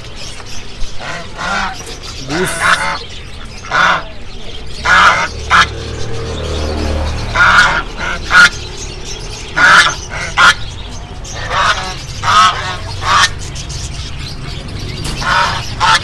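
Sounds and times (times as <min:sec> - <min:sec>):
ducks quacking: 0:00.6 - 0:16.0.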